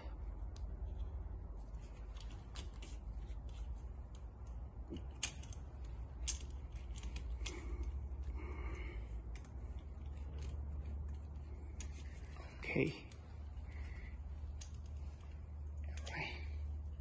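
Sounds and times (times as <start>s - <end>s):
steady low hum: 0.0s - 17.0s
small metal clicks and taps: 2.1s - 8.0s.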